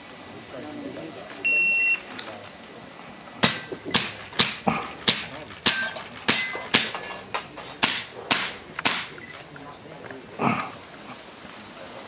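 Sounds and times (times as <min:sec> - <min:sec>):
airsoft pistol shots: 0:07.8 - 0:09.2.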